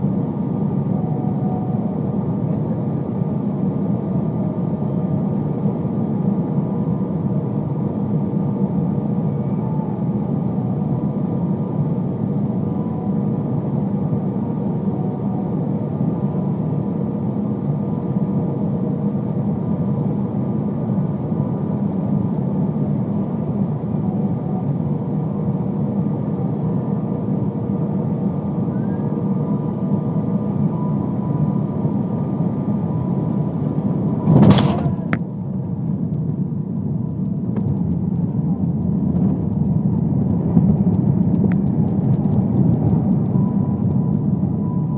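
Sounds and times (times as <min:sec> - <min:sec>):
airplane cabin engine rush: 0:00.0 - 0:44.9
faint steady whines: 0:00.0 - 0:44.9
wheels touching down thump: 0:34.3 - 0:35.2.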